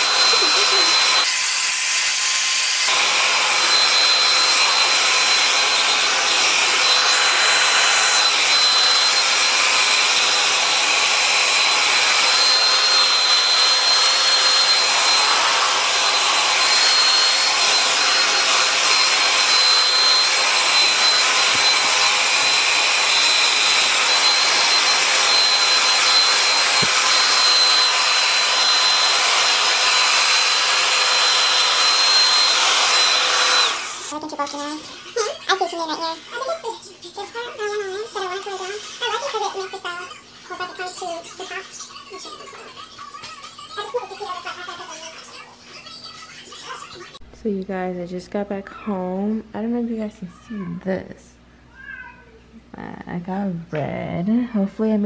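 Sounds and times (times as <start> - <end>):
hair dryer running: 0.0 - 36.7, 37.4 - 39.8.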